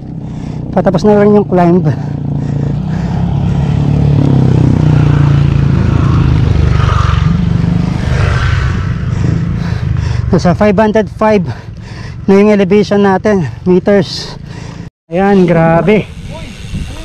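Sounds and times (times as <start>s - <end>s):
motorcycle passing by: 0.0s - 12.3s.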